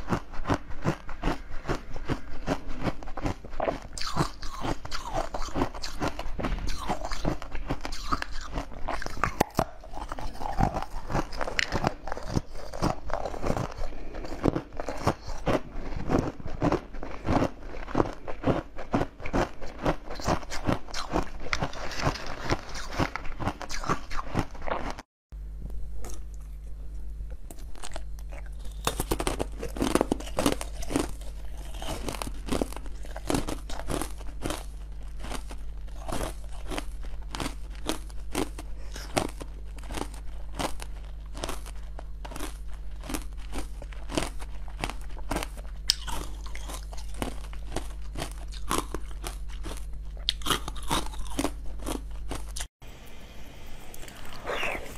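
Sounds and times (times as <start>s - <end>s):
crunching and chewing sweets: 0.0s - 25.1s, 25.8s - 53.0s, 53.7s - 54.9s
low steady hum: 0.0s - 54.9s.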